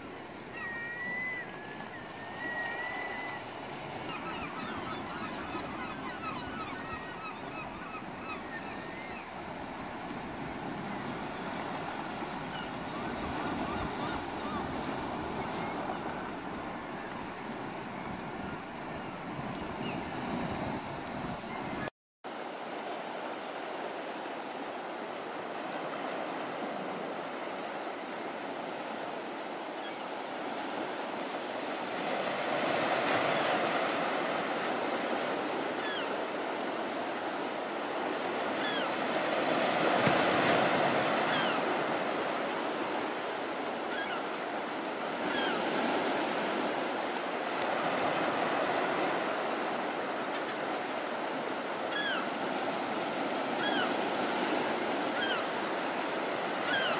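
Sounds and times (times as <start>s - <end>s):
sea surf washing: 22.4s - 56.9s
high bird calls: 51.9s - 52.3s.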